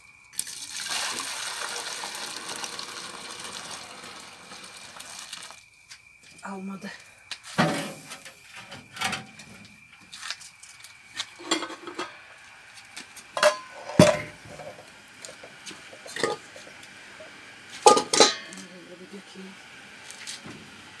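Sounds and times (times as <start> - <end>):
metal pots clanking: 11.4 - 12.3, 13.4 - 18.6.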